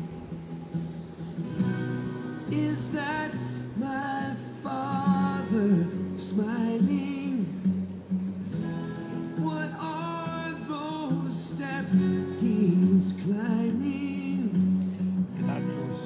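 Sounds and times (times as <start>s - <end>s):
person singing: 2.4s - 7.7s, 9.4s - 16.0s.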